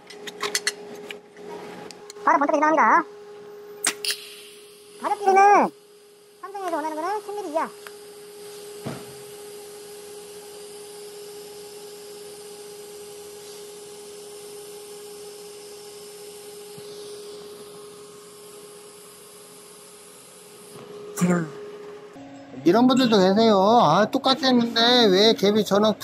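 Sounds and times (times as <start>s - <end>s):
welding arc hissing and humming: 3.5s - 22.0s.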